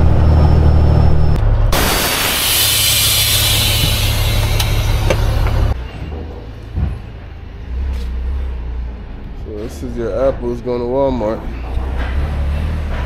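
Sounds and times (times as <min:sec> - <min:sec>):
diesel truck engine idling: 0:00.0 - 0:05.8
air brakes hissing: 0:01.8 - 0:05.8
thump: 0:03.7 - 0:05.6.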